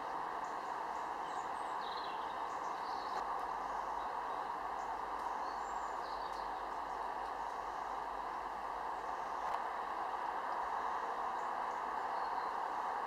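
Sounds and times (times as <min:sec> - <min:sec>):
distant highway traffic: 0:00.0 - 0:13.0.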